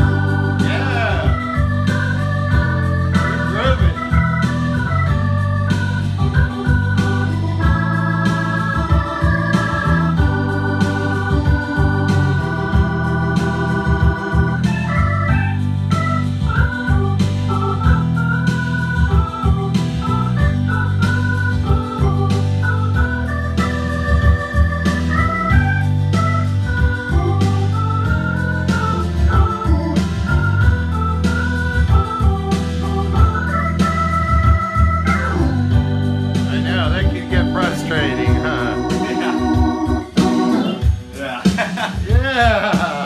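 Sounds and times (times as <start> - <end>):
organ chords wavering: 0.0 - 43.0.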